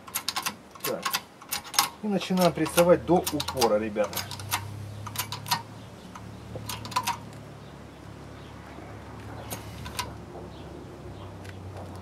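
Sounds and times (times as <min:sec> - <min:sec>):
hydraulic jack clicking: 0:00.0 - 0:07.3, 0:09.5 - 0:10.1.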